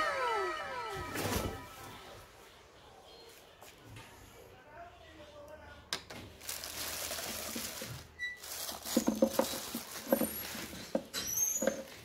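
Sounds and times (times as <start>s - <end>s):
plastic wrapping crinkling: 6.3s - 12.0s.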